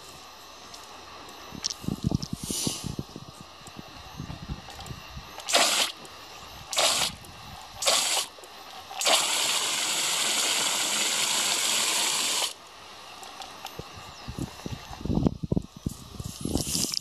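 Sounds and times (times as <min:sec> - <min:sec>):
hose nozzle spraying water: 0:05.4 - 0:06.0, 0:06.7 - 0:07.2, 0:07.8 - 0:08.3, 0:08.9 - 0:12.6.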